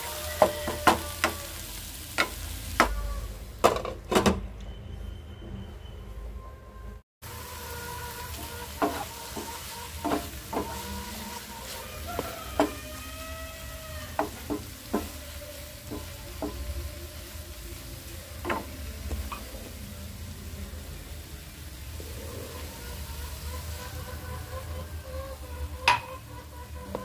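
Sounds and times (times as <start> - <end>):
spatula scraping a pan: 0.0 - 3.0, 7.3 - 17.4, 22.0 - 27.0
vegetables sizzling in a frying pan: 0.0 - 4.0, 7.2 - 27.0.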